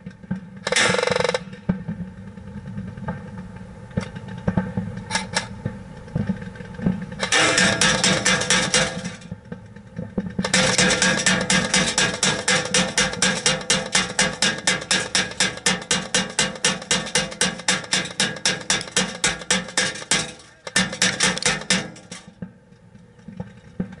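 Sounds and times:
bbs striking plexiglass shield: 10.4 - 22.3.

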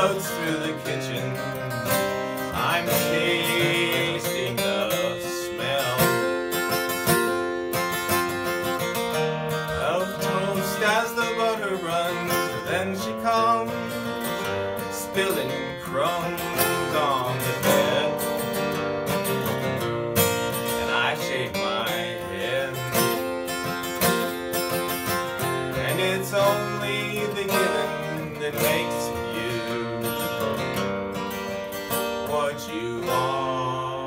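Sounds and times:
acoustic guitar playing: 0.0 - 34.0.

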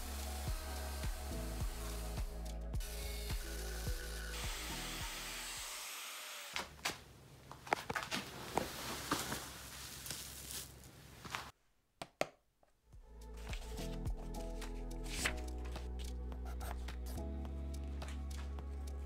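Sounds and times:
music: 0.0 - 5.7, 13.0 - 19.0
crunching and rustling of handling: 7.5 - 11.5.

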